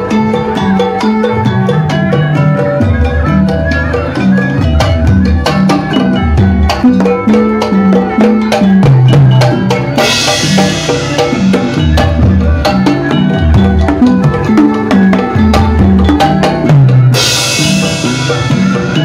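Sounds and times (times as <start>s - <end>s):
gamelan music: 0.0s - 19.0s
hand drums playing fast rhythms: 0.0s - 19.0s.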